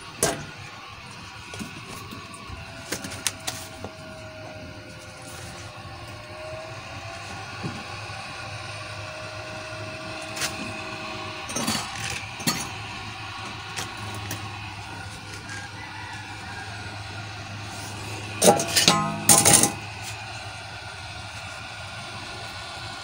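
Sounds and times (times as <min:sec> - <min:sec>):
blower fan humming: 0:00.0 - 0:23.0
metal clinks and knocks: 0:18.4 - 0:19.8.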